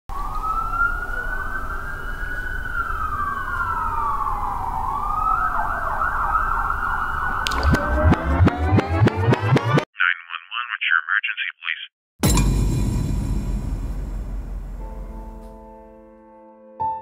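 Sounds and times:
police siren wailing and yelping: 0.1 - 9.8.

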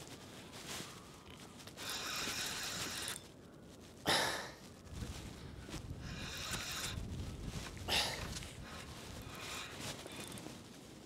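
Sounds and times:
fishing reel winding: 1.8 - 3.2, 6.2 - 7.0.

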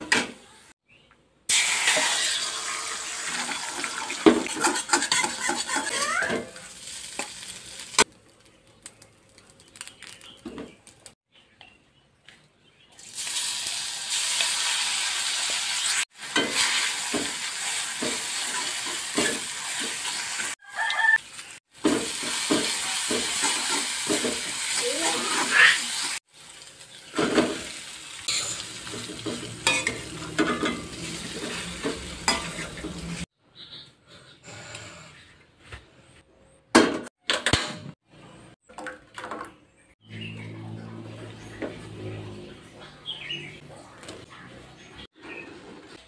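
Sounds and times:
sambal sizzling in hot oil: 1.5 - 5.9, 6.5 - 8.4, 13.0 - 33.3
metal spatula scraping a wok: 4.2 - 8.1, 27.2 - 33.3.

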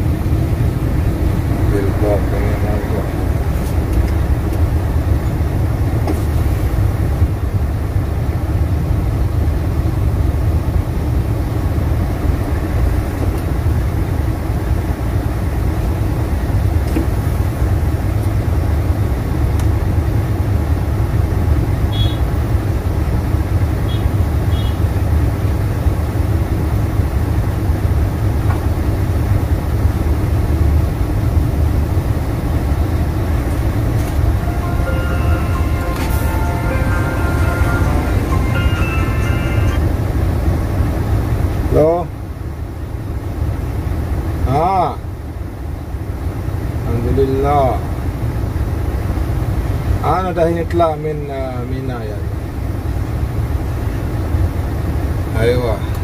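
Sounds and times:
truck engine idling: 0.0 - 16.8, 17.4 - 44.4.

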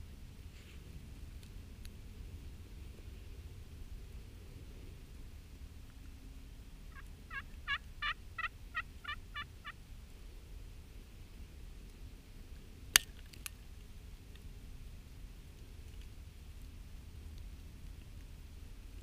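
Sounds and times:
turkey yelps: 6.9 - 9.8.

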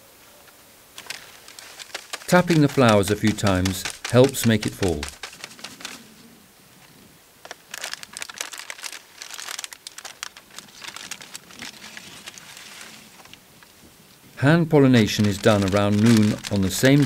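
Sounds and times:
paper bag crinkling and rustling: 1.0 - 6.1, 7.4 - 13.4, 14.8 - 17.0.

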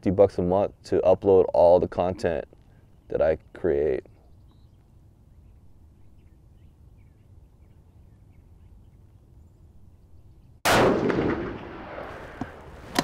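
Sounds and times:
rifle shot with echo: 10.6 - 13.0.

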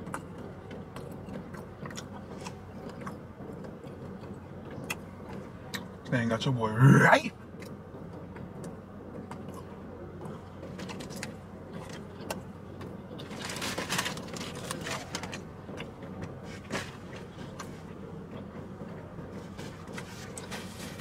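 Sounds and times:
steady low car hum: 0.0 - 21.0
paper wrapping crinkling: 13.3 - 15.4.

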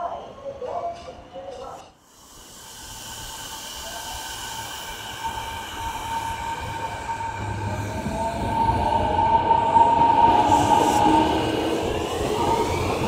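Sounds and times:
rumble of train wheels: 0.6 - 13.0
train high whine: 2.1 - 13.0
lower gliding tones: 5.2 - 13.0.

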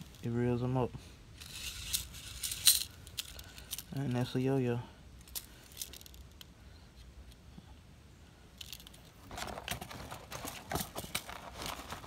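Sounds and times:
metal fishing reels clinking: 1.4 - 4.3
cardboard box rustling: 9.3 - 12.0.

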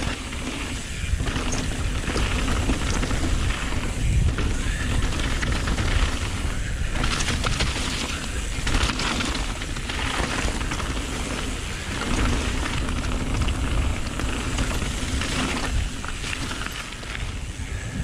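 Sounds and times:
bike rattling: 0.0 - 18.0
tyres crunching over gravel: 0.0 - 18.0
wind buffeting microphone: 0.0 - 18.0.

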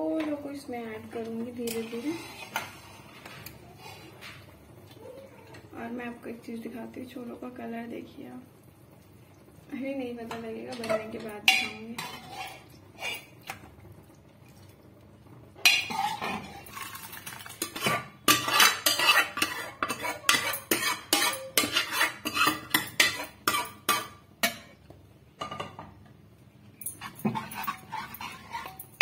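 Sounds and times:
metal spoon clinking on steel pot: 10.3 - 12.3, 17.6 - 24.7, 26.8 - 29.0.

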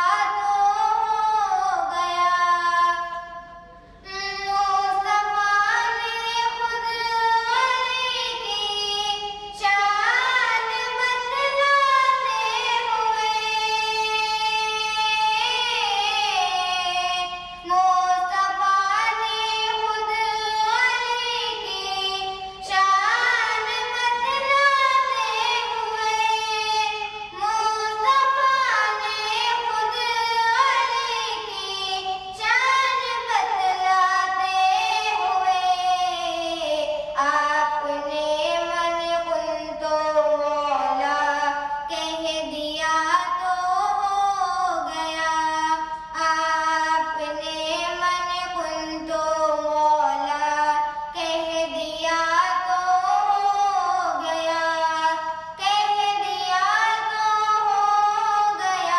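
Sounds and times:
girl singing devotional song: 0.0 - 58.9.

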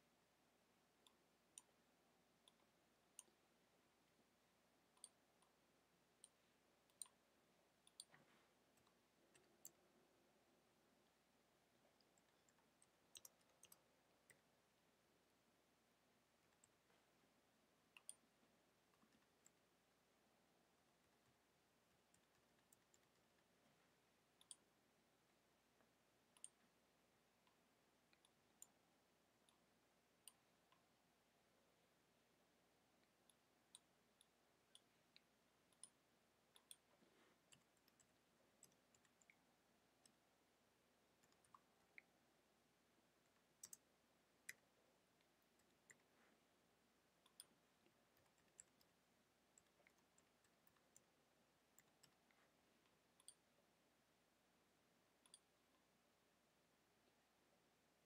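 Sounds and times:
keyboard typing clicks: 12.0 - 14.5, 43.3 - 43.9.

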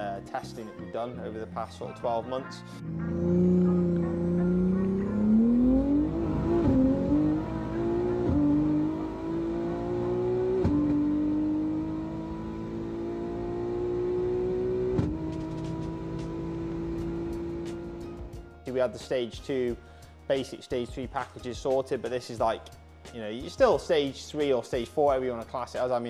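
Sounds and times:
car engine accelerating hard: 2.8 - 18.4.

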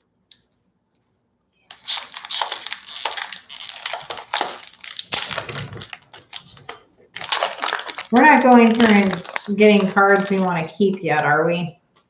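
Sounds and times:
foil wrapper crinkling and tearing: 1.7 - 11.4.

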